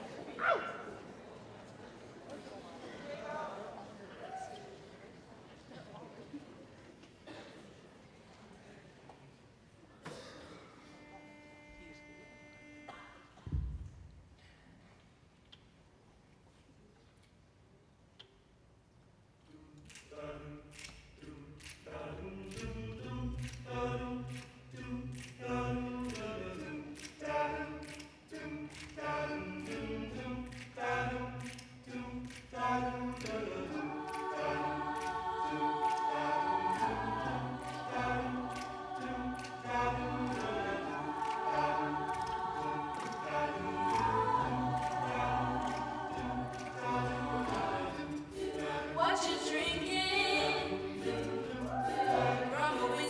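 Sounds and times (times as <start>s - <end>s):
a cappella group singing: 19.4s - 53.0s.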